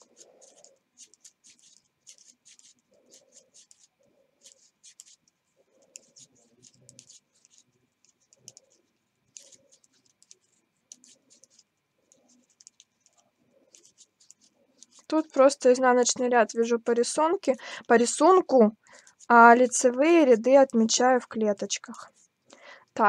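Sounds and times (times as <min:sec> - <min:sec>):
knitting needles clicking: 0:00.0 - 0:15.2, 0:20.4 - 0:21.9
yarn rustling: 0:00.0 - 0:15.5.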